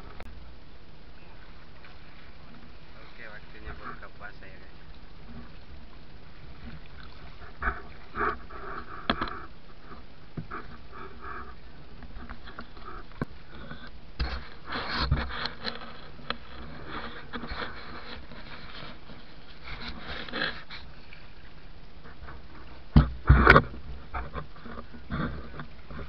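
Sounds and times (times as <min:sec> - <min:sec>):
rustling: 0:06.4 - 0:26.0
knocks in wooden boat: 0:22.9 - 0:24.4.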